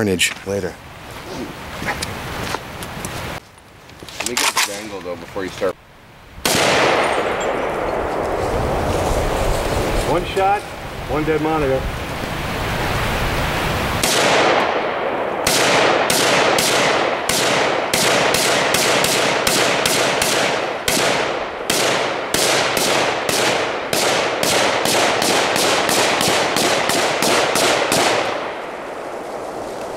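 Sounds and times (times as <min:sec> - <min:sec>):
rifle shots echoing: 0:06.4 - 0:08.4, 0:14.0 - 0:29.3.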